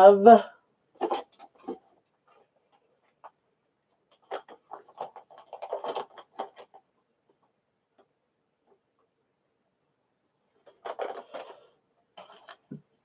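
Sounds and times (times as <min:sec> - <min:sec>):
small packages clicking and rattling: 0:01.0 - 0:06.9, 0:10.6 - 0:12.8.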